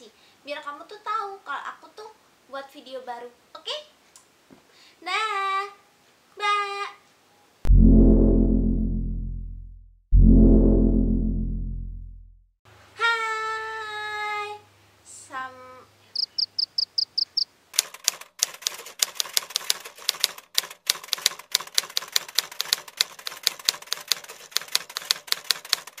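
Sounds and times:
typewriter key clicking: 17.8s - 26.0s.

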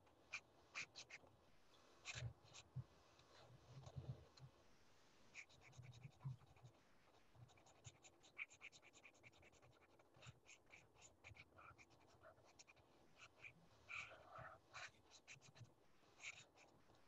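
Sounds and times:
pen scratching on paper: 7.5s - 15.6s, 16.2s - 16.7s.

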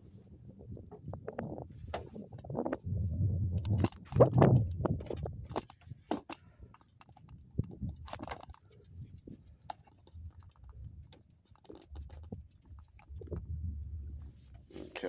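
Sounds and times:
faint low hum: 7.5s - 15.0s.

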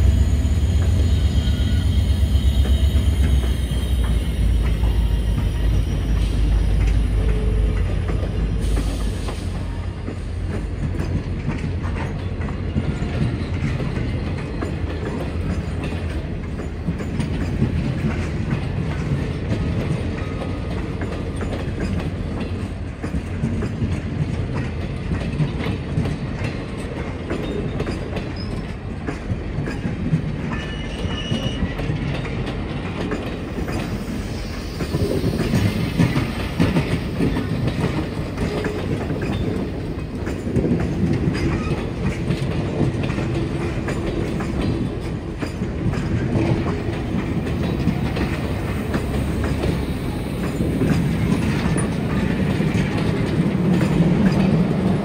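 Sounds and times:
high wheel squeal: 0.0s - 7.7s, 30.5s - 31.8s
train cars rumbling past: 0.0s - 55.0s
wheels clicking over rail joints: 2.6s - 55.0s.

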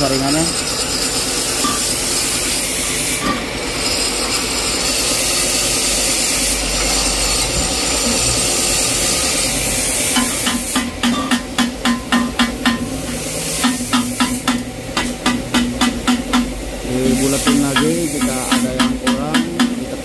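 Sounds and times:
sharp ringing knocks: 10.2s - 13.0s
steady hissing: 16.9s - 20.0s.

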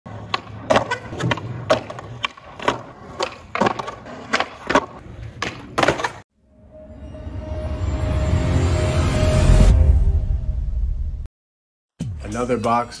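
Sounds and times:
skateboard pops and landing clacks: 0.1s - 6.2s
skateboard wheels rolling: 0.1s - 6.2s.

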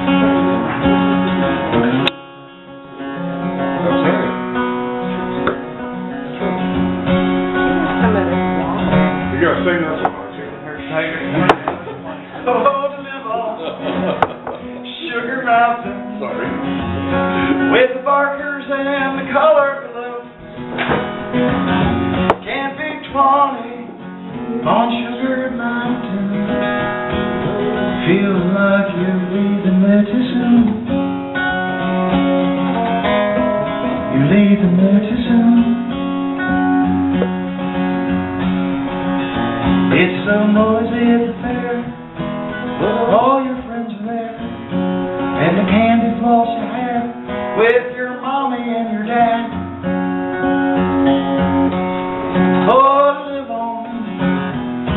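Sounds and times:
acoustic guitar: 0.0s - 54.9s
man singing: 11.2s - 16.7s, 17.6s - 20.4s, 22.4s - 27.0s, 27.6s - 31.2s, 33.8s - 36.5s, 39.8s - 49.7s, 52.3s - 54.4s.

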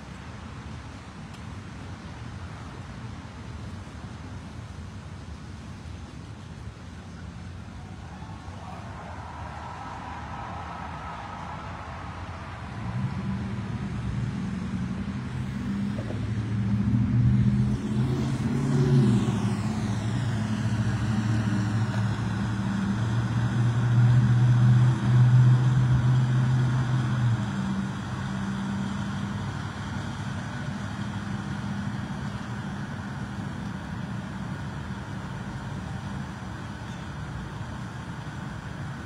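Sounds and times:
vehicle engine pulling away: 12.7s - 39.0s.

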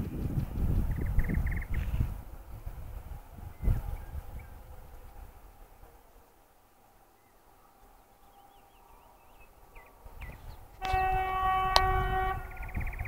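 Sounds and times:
train rumble: 0.0s - 13.0s
locomotive horn blast: 10.8s - 12.8s.

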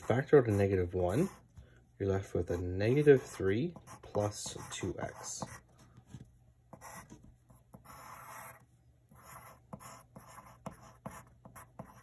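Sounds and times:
pencil scratching on paper: 0.0s - 1.6s, 2.4s - 5.8s, 6.7s - 12.0s.

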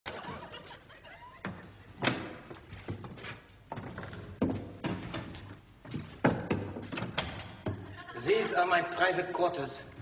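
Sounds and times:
footsteps on hard floor: 1.4s - 7.9s.

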